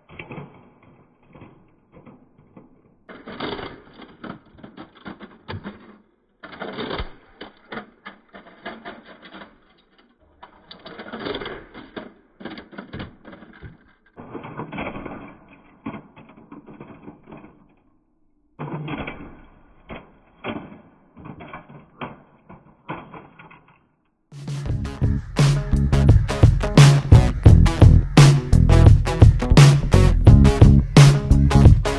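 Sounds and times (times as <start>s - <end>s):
metal model car crashing into concrete: 0.0s - 17.9s, 18.6s - 24.0s.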